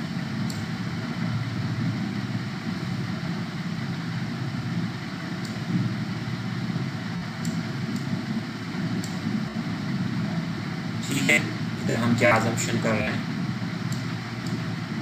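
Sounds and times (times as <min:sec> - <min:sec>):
low hum with hiss: 0:00.0 - 0:15.0
faint clicks: 0:07.4 - 0:08.1, 0:09.0 - 0:09.2, 0:13.9 - 0:14.6.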